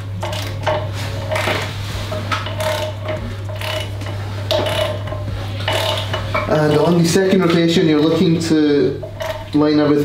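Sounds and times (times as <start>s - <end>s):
ratchet wrench clicking: 2.4s - 7.0s.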